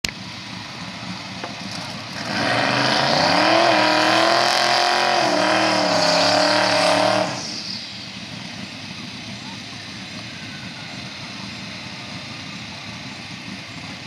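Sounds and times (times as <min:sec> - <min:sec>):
engine at high revs: 0:00.5 - 0:09.4
tyres spinning in burnout: 0:01.8 - 0:08.2.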